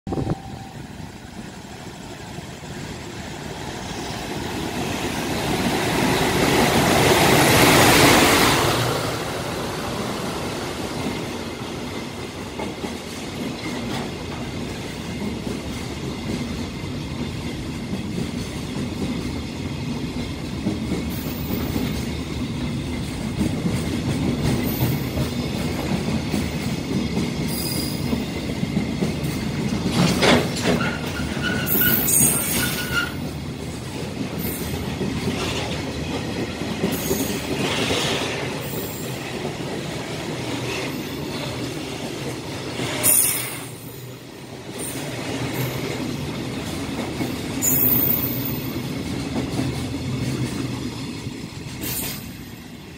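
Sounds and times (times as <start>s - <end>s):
freight train rumbling past: 0.1s - 52.9s
clatter at rail joints: 11.0s - 52.7s
high-pitched wheel squeals: 30.8s - 33.3s.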